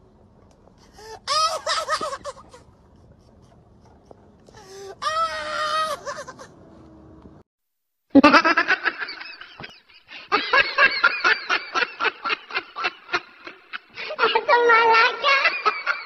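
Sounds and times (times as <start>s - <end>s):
rhythmic laughter: 1.4s - 3.6s, 5.9s - 6.6s.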